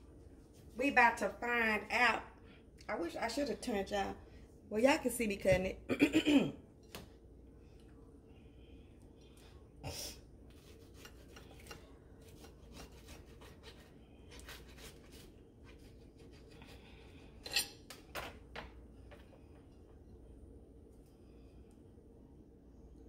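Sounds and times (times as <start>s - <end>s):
knife sawing through toast crust: 10.5s - 17.0s.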